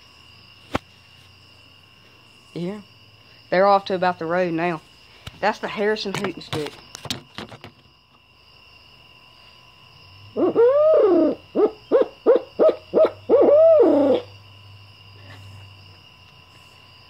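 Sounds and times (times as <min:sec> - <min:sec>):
owl call hoots: 0:10.3 - 0:14.3.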